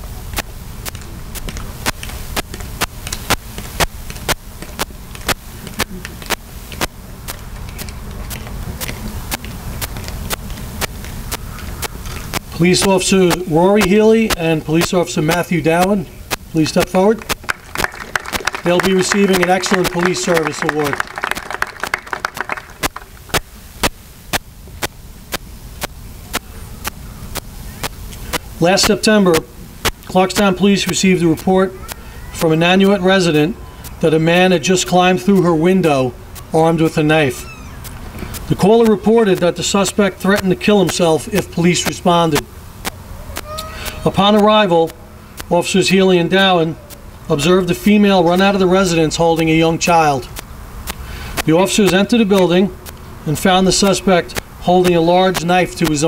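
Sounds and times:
sharp clicks: 0.3s - 33.0s, 33.8s - 34.1s, 35.8s - 45.8s, 49.4s - 56.0s
audience applause: 17.2s - 23.2s.

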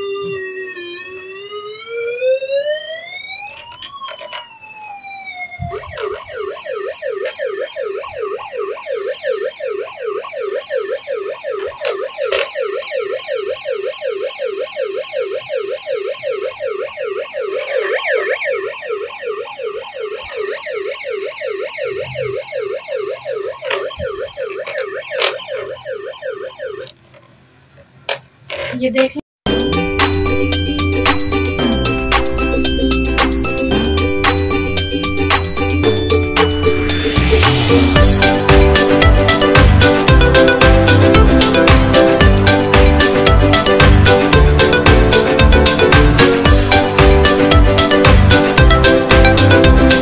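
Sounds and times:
toy electronic siren: 0.0s - 26.9s, 30.4s - 50.0s.

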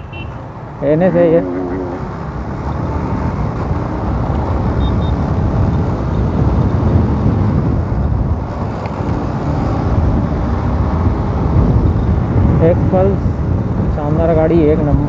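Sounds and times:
road noise: 0.0s - 15.0s
wind noise: 3.0s - 15.0s.

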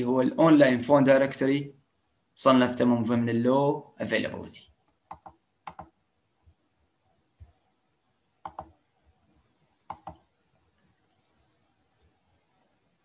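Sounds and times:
computer mouse clicks: 4.8s - 6.0s, 8.4s - 8.8s, 9.9s - 10.3s.

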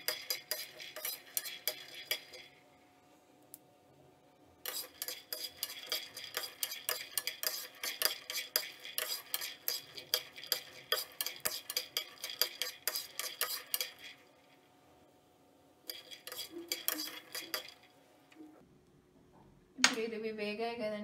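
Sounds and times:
nuts rattling in a pan: 0.0s - 2.5s, 4.7s - 14.3s, 15.9s - 17.9s.

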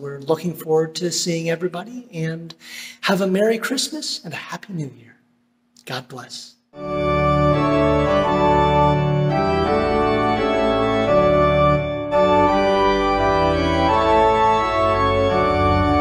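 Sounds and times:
organ chords: 6.7s - 16.0s.

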